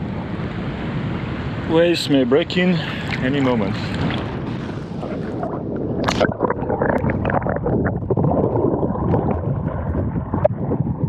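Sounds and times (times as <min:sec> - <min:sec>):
muffled underwater gurgling: 0:02.6 - 0:11.0
water splash: 0:02.7 - 0:10.6.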